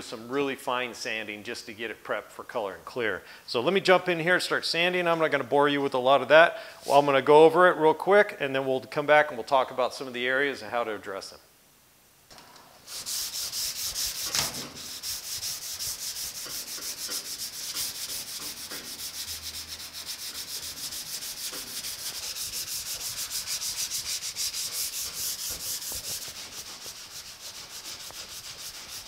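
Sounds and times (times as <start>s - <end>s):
sandpaper scratching metal: 12.8s - 29.0s.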